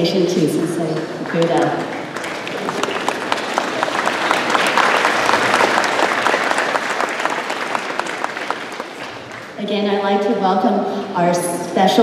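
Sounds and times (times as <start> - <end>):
audience applauding: 1.0 - 9.6.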